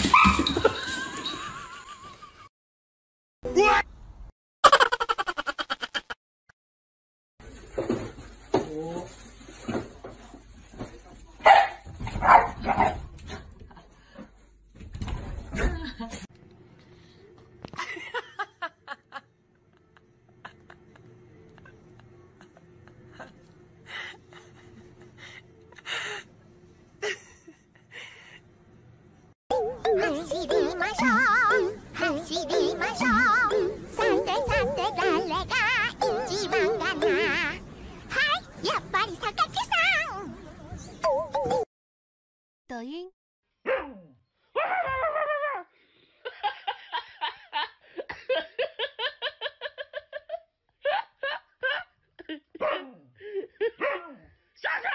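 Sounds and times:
person laughing hard: 0:04.7 - 0:06.2.

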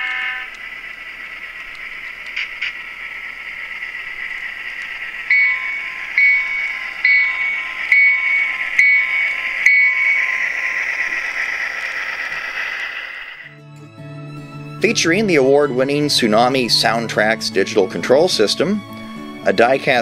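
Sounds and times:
locomotive bell striking: 0:00.0 - 0:00.8, 0:04.8 - 0:12.3
model locomotive hiss from speaker: 0:00.0 - 0:13.5.

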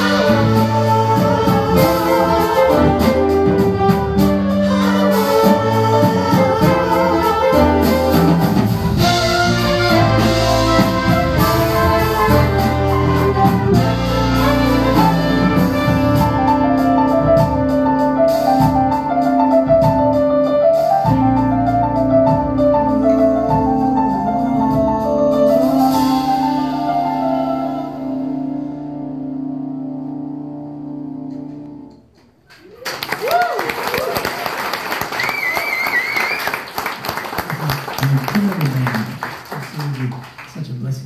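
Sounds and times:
jazz big band playing: 0:00.0 - 0:32.5.

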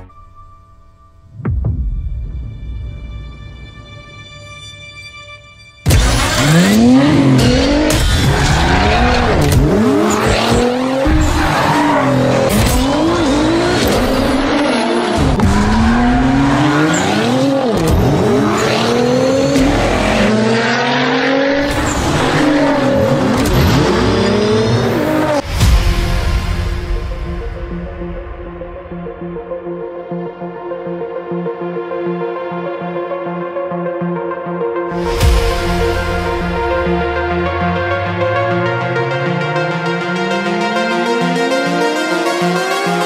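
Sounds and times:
car engine starting and revving: 0:05.9 - 0:25.6, 0:35.0 - 0:43.0.

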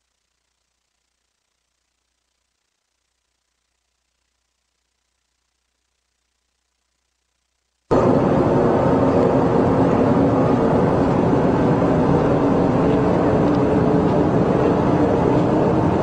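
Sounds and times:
rushing noise: 0:07.9 - 0:16.0
steady mechanical drone: 0:07.9 - 0:16.0.

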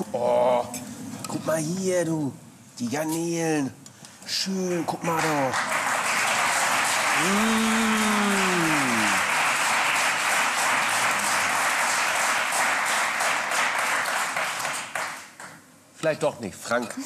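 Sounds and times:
studio audience applauding: 0:04.8 - 0:15.6
man's drawn-out vocal sound: 0:07.2 - 0:09.3.

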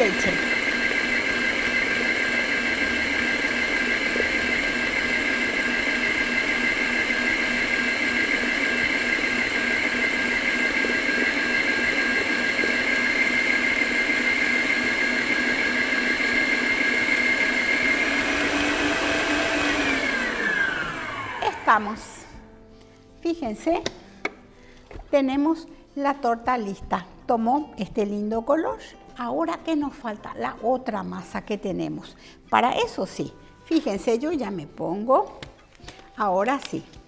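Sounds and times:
stand mixer motor whine: 0:00.0 - 0:22.3.

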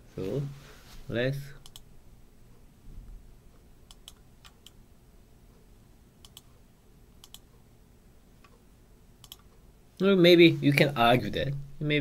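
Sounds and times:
faint low hum: 0:00.0 - 0:12.0
computer clicks: 0:01.6 - 0:01.9, 0:03.9 - 0:04.8, 0:06.2 - 0:06.6, 0:07.2 - 0:07.6, 0:09.2 - 0:09.6.

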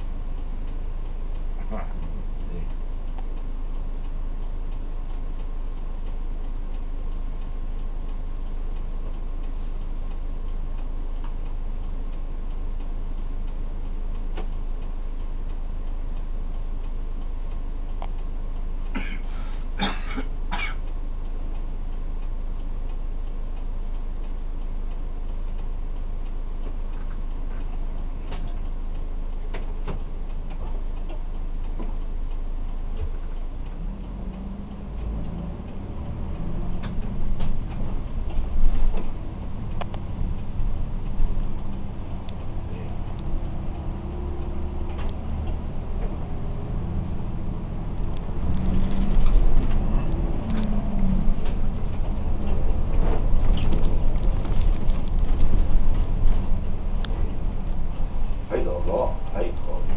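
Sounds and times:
steady ticking: 0:00.0 - 0:59.9
bus diesel engine idling: 0:15.0 - 0:21.8, 0:33.8 - 0:59.9
person coughing: 0:19.0 - 0:20.8.

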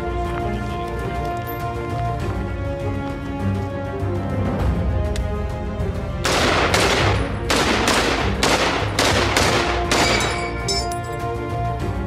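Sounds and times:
background music: 0:00.0 - 0:12.0
rifle shots: 0:06.2 - 0:10.5.

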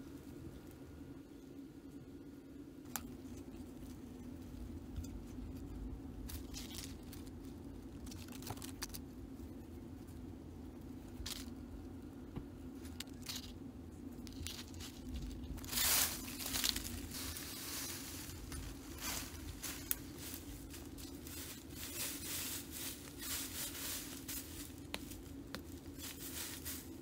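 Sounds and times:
steady low hum: 0:00.0 - 0:27.0
dry leaves and twigs rustling: 0:02.8 - 0:27.0
leaf litter crunching: 0:05.4 - 0:09.1, 0:14.2 - 0:27.0.

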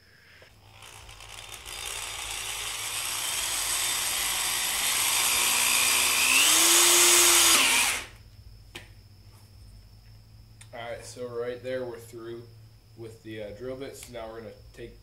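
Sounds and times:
electric drill boring through rubber: 0:00.5 - 0:08.2.

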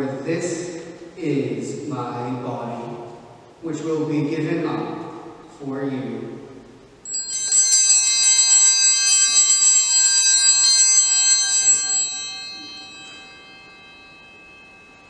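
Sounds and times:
small bells ringing: 0:07.0 - 0:15.0.

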